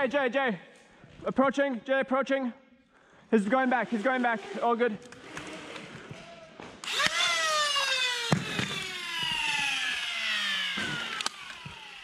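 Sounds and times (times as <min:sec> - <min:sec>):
flywheel motors whining: 0:06.8 - 0:12.0.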